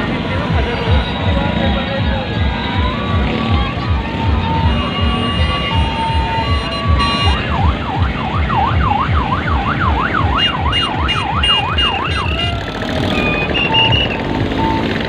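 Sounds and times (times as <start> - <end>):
bass beat of music: 0.0 - 15.0
electronic siren wailing: 2.2 - 15.0
short beeping tones: 13.0 - 15.0.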